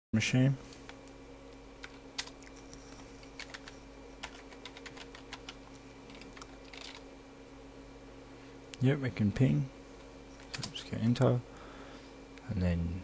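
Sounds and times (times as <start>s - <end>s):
steady low hum: 0.1s - 13.0s
keyboard keys clicking: 1.8s - 7.0s.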